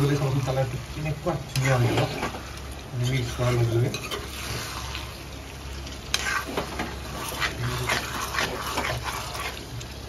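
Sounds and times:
curry sizzling: 0.0 - 10.0
metal spatula scraping pan: 6.1 - 9.6.

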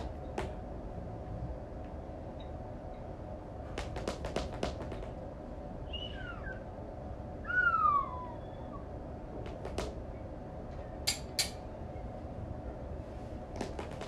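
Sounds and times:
squeaky falling whine: 5.8 - 6.8, 7.4 - 9.0.

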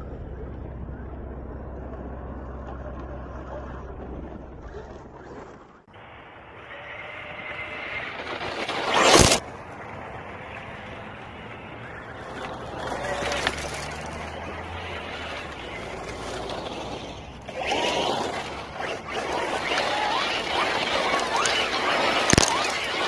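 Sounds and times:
tyres spraying gravel: 6.1 - 23.0
electric motor whining: 10.5 - 23.0.

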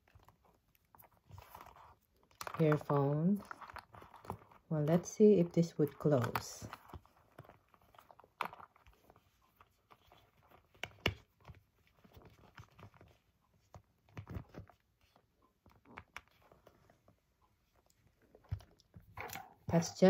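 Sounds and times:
leather clutch taps and rustles: 5.9 - 16.8.

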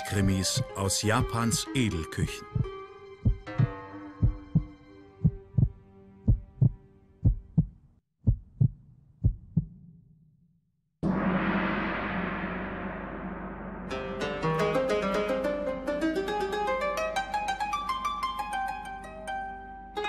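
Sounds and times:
heartbeat-like low thumps: 0.6 - 1.6, 2.4 - 9.9
gong-like crash: 11.0 - 15.6.

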